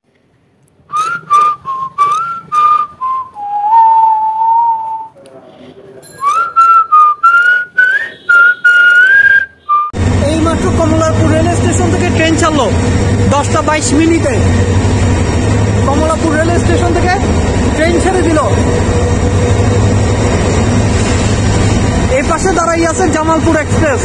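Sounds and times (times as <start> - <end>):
person whistling a tune: 0.9 - 5.1, 6.2 - 10.0.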